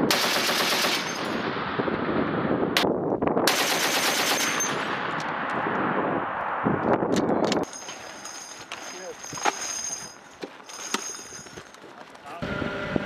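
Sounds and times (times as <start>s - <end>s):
heavy machine gun bursts: 0.1s - 1.4s.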